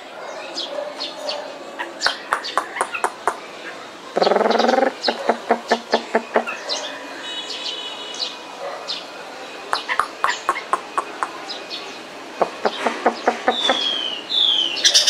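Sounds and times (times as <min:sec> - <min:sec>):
caged bird chirping and clicking: 0:02.0 - 0:03.5, 0:09.7 - 0:11.7
bird harsh rasping call: 0:02.0 - 0:08.3, 0:09.8 - 0:11.7, 0:12.4 - 0:15.0
bird sharp chip notes: 0:09.7 - 0:11.6.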